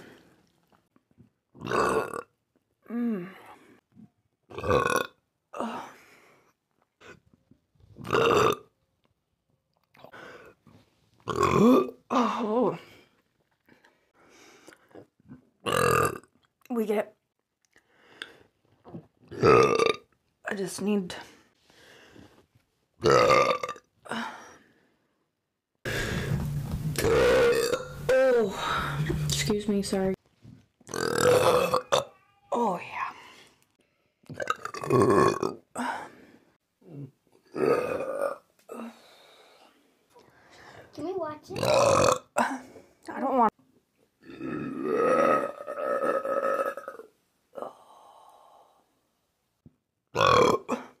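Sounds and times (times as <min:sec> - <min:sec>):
woman belching loudly: 0:01.6 - 0:02.3, 0:04.5 - 0:05.7, 0:08.0 - 0:08.7, 0:11.3 - 0:12.4, 0:15.7 - 0:16.3, 0:19.4 - 0:20.1, 0:23.0 - 0:23.9, 0:27.0 - 0:29.0, 0:30.9 - 0:32.1, 0:34.3 - 0:35.6, 0:37.5 - 0:38.5, 0:41.6 - 0:42.5, 0:44.2 - 0:47.1, 0:50.2 - 0:50.9
woman burping: 0:01.6 - 0:03.4, 0:04.5 - 0:05.9, 0:08.0 - 0:08.7, 0:11.3 - 0:12.8, 0:19.4 - 0:20.1, 0:23.0 - 0:24.2, 0:27.0 - 0:29.2, 0:30.9 - 0:32.1, 0:34.3 - 0:36.0, 0:36.8 - 0:38.9, 0:41.6 - 0:42.7, 0:44.2 - 0:47.7, 0:50.2 - 0:51.0.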